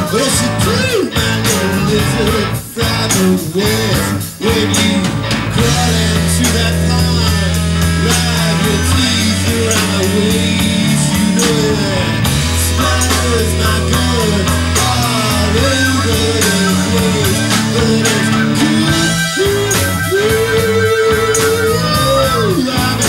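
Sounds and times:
drums: 0.0 - 23.0
electric guitar bending notes: 0.0 - 23.0
bass holding low note: 5.0 - 23.0.

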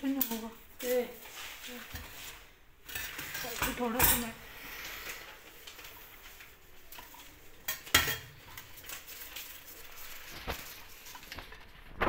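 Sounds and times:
paper liners handling noise: 4.7 - 12.0.

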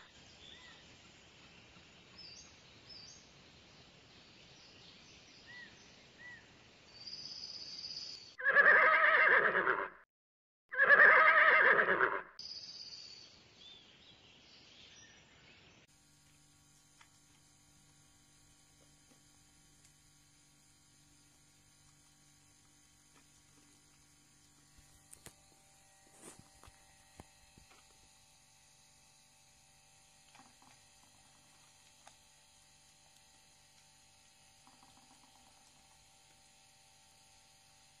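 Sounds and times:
faint electrical hum: 12.4 - 38.0.

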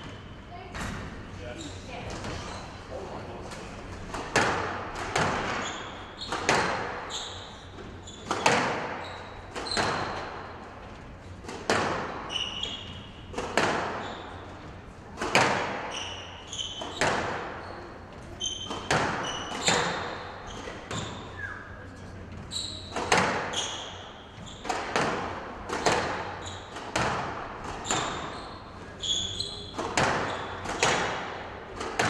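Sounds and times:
shoes squeaking on court floor: 0.0 - 32.0
squash ball hits echoing: 4.0 - 10.6, 11.4 - 21.5, 22.4 - 28.4, 29.0 - 32.0.

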